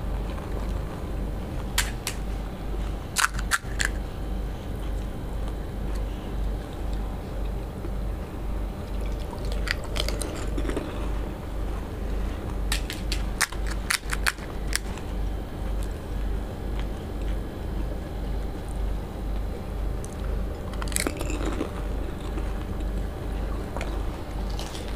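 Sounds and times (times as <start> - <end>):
steady low hum: 0.0 - 24.9
fried shells crackling: 3.1 - 4.0, 12.5 - 14.9.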